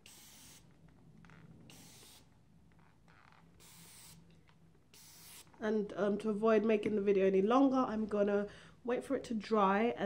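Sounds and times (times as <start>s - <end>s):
spray bottle misting: 1.7s - 2.3s, 3.6s - 4.2s, 4.9s - 5.5s.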